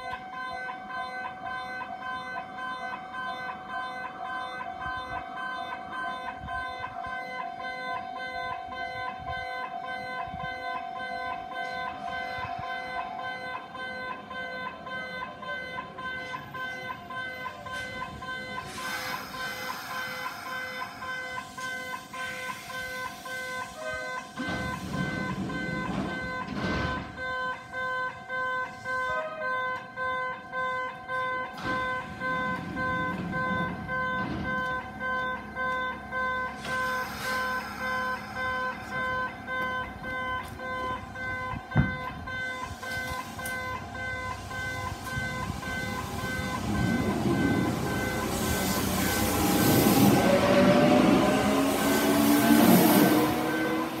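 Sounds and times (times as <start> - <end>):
level crossing warning bell: 0.0 - 54.0
train wheels on track: 11.2 - 30.0, 30.8 - 54.0
train motor whine: 16.1 - 28.0, 31.5 - 54.0
low rushing noise: 44.4 - 54.0.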